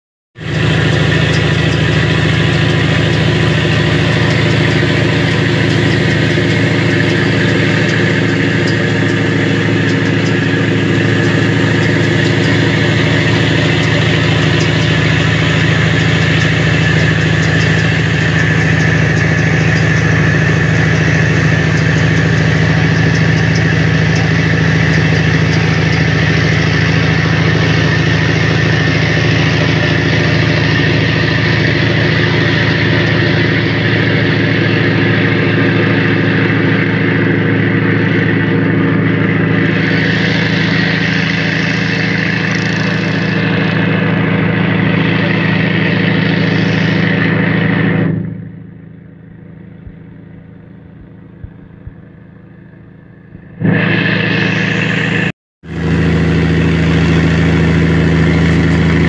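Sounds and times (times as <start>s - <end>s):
boat engine drone: 0.4s - 59.0s
rushing noise: 53.4s - 59.0s.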